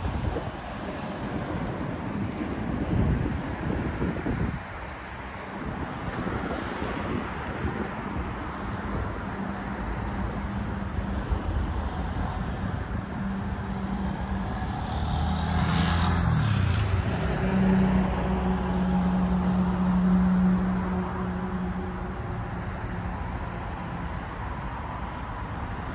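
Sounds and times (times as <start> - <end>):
cars passing: 0.0 - 25.9.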